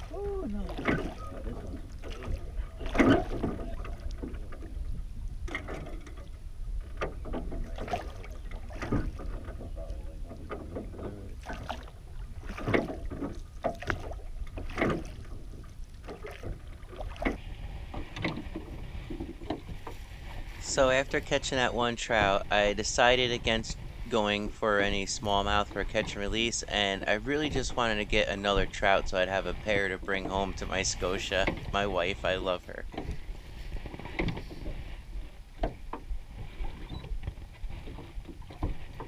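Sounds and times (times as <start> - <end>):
oars knocking in oarlocks: 0.0 - 4.8, 5.4 - 20.4, 32.9 - 39.0
oars dipping into water: 0.0 - 39.0
wind rumble on microphone: 0.0 - 39.0.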